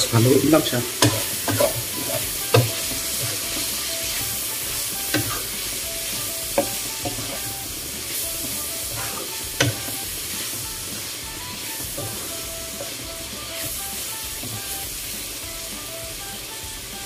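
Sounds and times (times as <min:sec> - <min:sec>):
wooden spatula stirring: 0:00.0 - 0:14.8
food sizzling in a wok: 0:00.0 - 0:17.0
spatula knocking against pan: 0:01.0 - 0:03.6, 0:06.5 - 0:07.4, 0:08.4 - 0:09.9.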